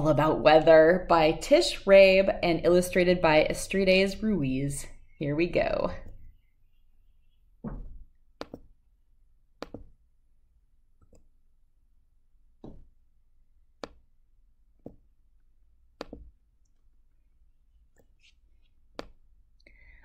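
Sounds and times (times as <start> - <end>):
computer mouse clicking: 8.4 - 8.7, 11.0 - 11.3.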